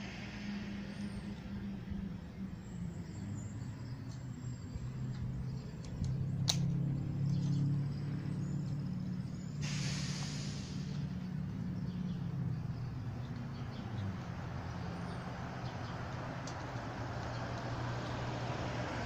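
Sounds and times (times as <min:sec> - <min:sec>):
low engine-like hum: 0:00.0 - 0:19.0
short burst of hiss: 0:09.6 - 0:10.9.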